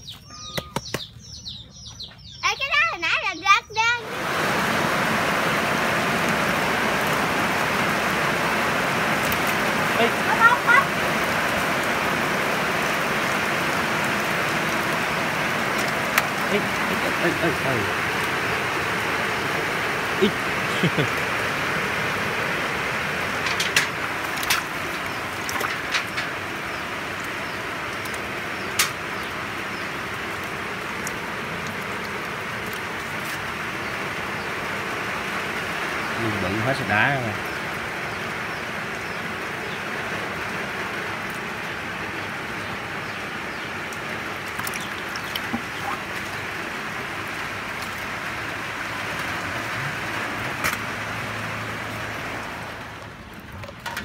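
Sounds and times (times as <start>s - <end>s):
rush of spraying water: 3.8s - 54.0s.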